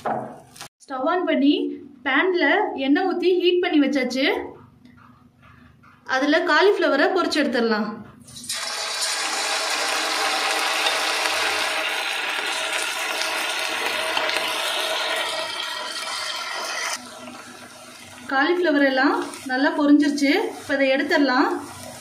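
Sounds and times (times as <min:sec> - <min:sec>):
food deep-frying in hot oil: 0:08.4 - 0:22.0.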